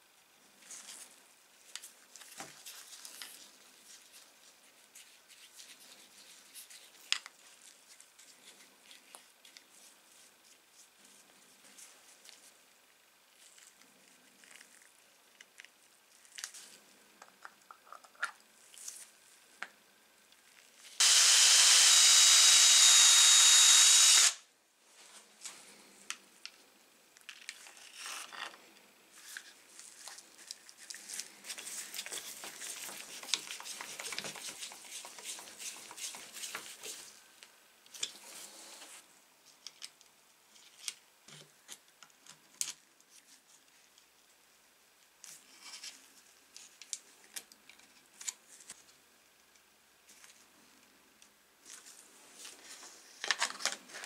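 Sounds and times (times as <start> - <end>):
power tool running: 21.0 - 24.4.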